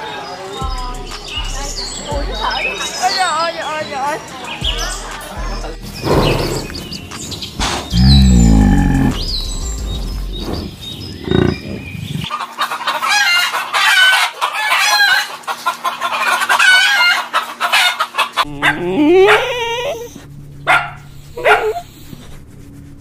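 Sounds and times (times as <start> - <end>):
chickens clucking: 10.4 - 20.8
rooster: 12.3 - 20.1
dog whining: 18.4 - 20.2, 21.4 - 21.9.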